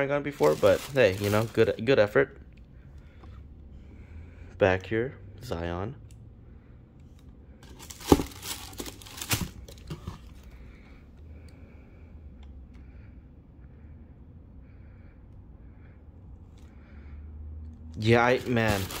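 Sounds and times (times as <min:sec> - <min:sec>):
packing paper crinkling: 0:00.0 - 0:01.9, 0:07.8 - 0:09.9, 0:18.0 - 0:19.0.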